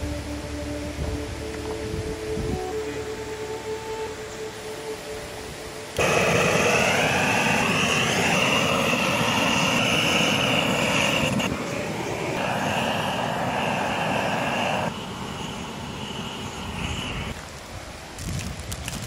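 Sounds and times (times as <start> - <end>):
small motor whining: 6.0 - 17.4.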